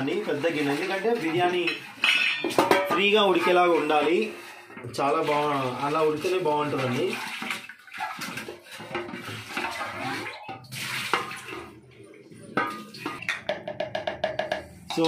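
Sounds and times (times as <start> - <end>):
pot being emptied: 0.0 - 13.5
water splashing in a metal pot: 0.0 - 15.0
metal pot knocking: 1.2 - 3.7, 12.6 - 15.0.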